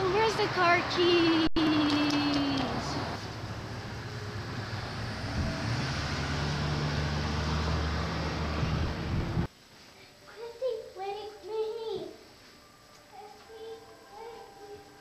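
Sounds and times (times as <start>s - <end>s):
low engine hum: 0.0s - 9.5s
road traffic noise: 0.0s - 9.5s.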